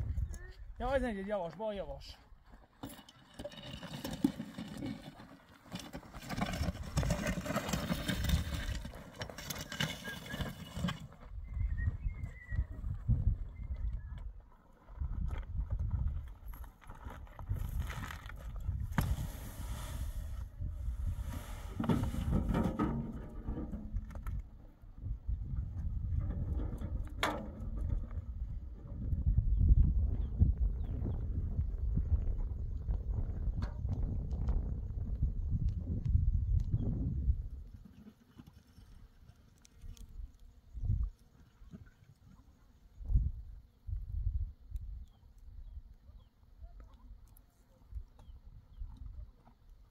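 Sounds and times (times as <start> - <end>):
wind rumbling on microphone: 0.0 - 1.1, 11.2 - 38.0, 39.8 - 41.8, 42.9 - 49.9
footsteps on stony ground: 0.0 - 19.7
metal wheelbarrow rattling: 2.7 - 11.2, 21.8 - 24.0
footsteps crunching on gravel: 14.8 - 19.4.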